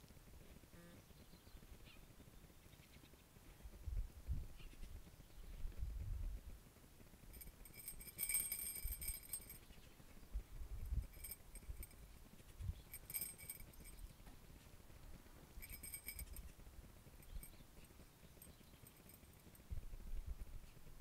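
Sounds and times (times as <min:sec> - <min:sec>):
light metallic tinkling: 0:07.2 - 0:20.9.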